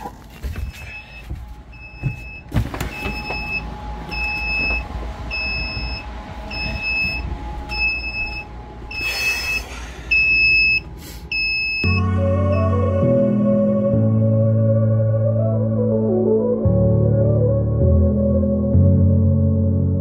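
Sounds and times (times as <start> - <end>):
electronic alarm beeping: 0.6 - 12.7
low rumbling: 1.5 - 20.0.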